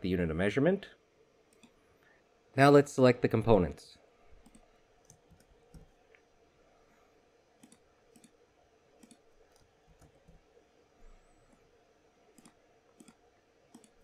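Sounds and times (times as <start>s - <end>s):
mouse clicks: 1.5s - 1.8s, 4.4s - 6.2s, 7.6s - 8.4s, 9.0s - 10.4s, 12.3s - 14.0s
keyboard clicking: 4.4s - 5.9s, 9.0s - 10.4s, 12.4s - 14.0s.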